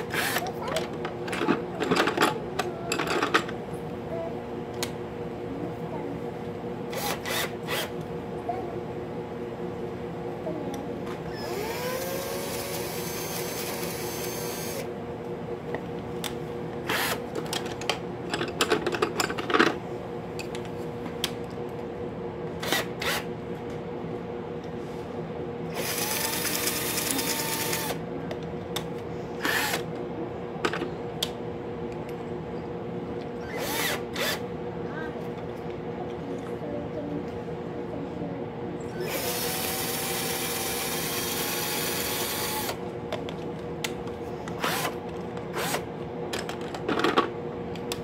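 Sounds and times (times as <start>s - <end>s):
cordless drill motor whirring: 0.0s - 0.5s, 6.9s - 7.9s, 11.3s - 14.9s, 16.9s - 17.2s, 25.7s - 28.0s, 29.4s - 29.9s, 33.4s - 34.4s, 38.9s - 42.8s, 44.6s - 45.0s.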